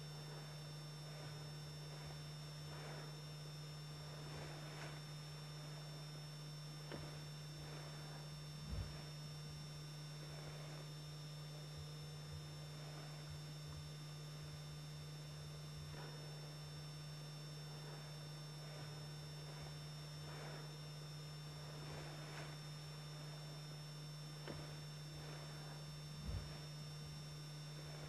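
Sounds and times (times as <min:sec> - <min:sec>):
faint rustles: 0:00.0 - 0:28.0
high steady whines: 0:00.0 - 0:28.0
low electrical hum: 0:00.0 - 0:28.0
even hiss: 0:17.7 - 0:20.7, 0:21.6 - 0:23.8.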